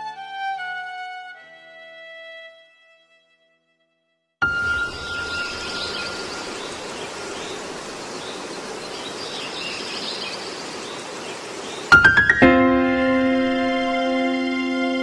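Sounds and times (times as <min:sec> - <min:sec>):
faint high chirps: 0:04.4 - 0:10.5
steady background hiss: 0:04.4 - 0:15.0.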